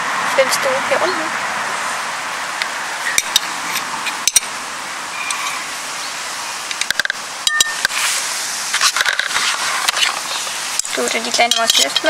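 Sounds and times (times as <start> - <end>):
steady hiss: 1.0 - 12.0
spoon clinking against glass bowl: 7.5 - 7.8.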